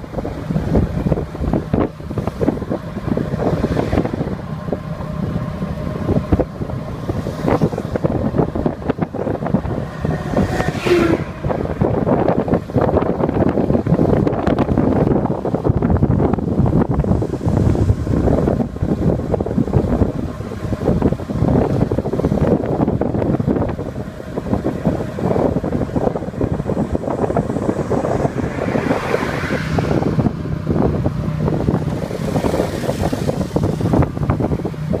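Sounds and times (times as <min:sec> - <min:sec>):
passing motorbike: 0:00.0 - 0:35.0
road rumble: 0:00.0 - 0:35.0
wind buffeting microphone: 0:00.0 - 0:35.0.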